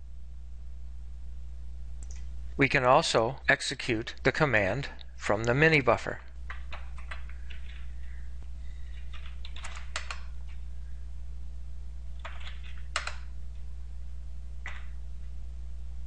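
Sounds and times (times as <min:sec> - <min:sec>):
steady low hum: 0:00.0 - 0:16.0
keyboard typing: 0:06.5 - 0:08.0, 0:08.8 - 0:10.6, 0:12.1 - 0:13.4, 0:14.6 - 0:15.0.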